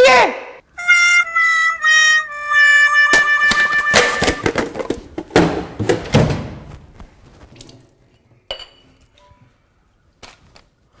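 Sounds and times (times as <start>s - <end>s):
metal tin clattering: 3.2s - 6.1s.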